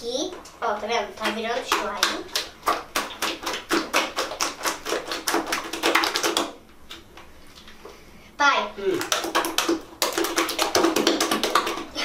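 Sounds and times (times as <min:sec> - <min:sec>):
hands slapping wet slime: 0:01.2 - 0:07.0, 0:08.9 - 0:12.0.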